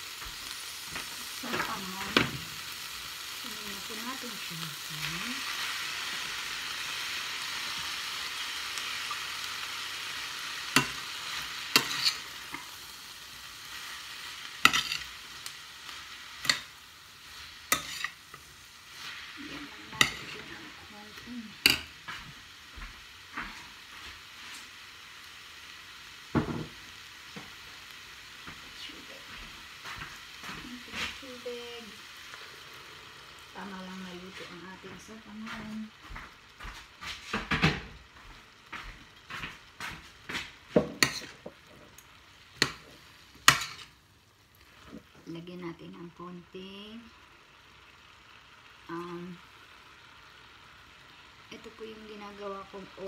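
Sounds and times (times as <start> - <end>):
frying pan sizzling: 0.0 - 53.0
metal spoon clinking on pan: 14.6 - 15.1, 17.7 - 18.2.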